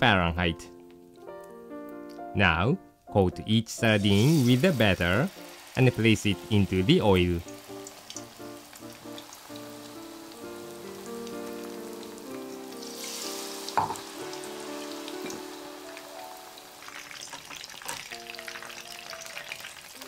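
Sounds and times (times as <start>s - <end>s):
light background music: 0.0s - 20.0s
fish deep-frying in oil: 4.0s - 20.0s.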